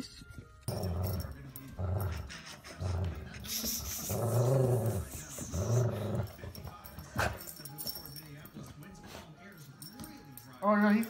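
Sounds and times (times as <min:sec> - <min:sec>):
dog growling: 0:00.7 - 0:07.5.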